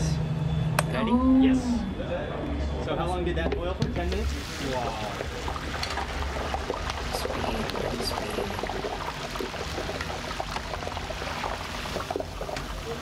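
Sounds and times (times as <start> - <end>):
chicken sizzling in hot oil: 4.2 - 13.0.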